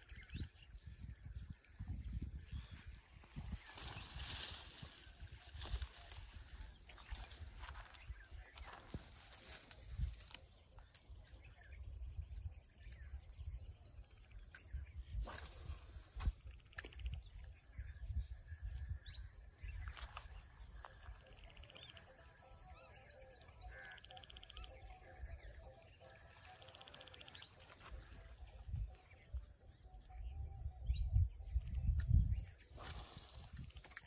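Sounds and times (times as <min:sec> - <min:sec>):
wind rumbling on microphone: 0:00.0 - 0:22.0, 0:24.3 - 0:34.0
bird chirps: 0:00.0 - 0:34.0
high insect drone: 0:02.6 - 0:14.1, 0:23.0 - 0:30.8.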